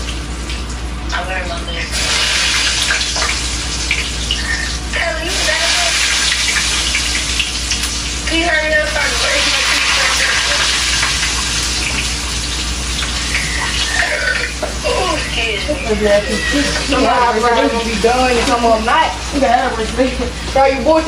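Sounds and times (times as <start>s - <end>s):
grease sizzling in a frying pan: 1.9s - 14.5s
faint voices: 14.0s - 21.0s.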